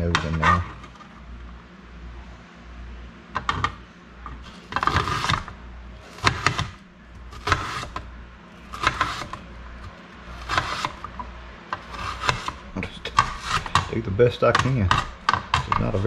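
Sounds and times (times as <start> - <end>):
knife slicing an onion: 4.6 - 8.0, 8.6 - 11.1, 11.8 - 14.0.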